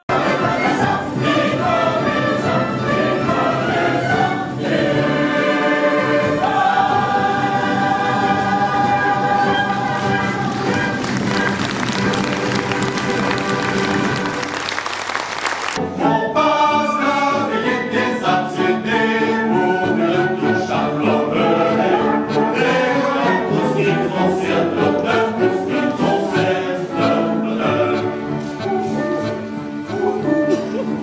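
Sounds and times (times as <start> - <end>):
male chorus singing: 0.1 - 11.0, 15.9 - 28.8
brighter noisier music passage: 0.1 - 31.0
orchestral accompaniment: 0.1 - 31.0.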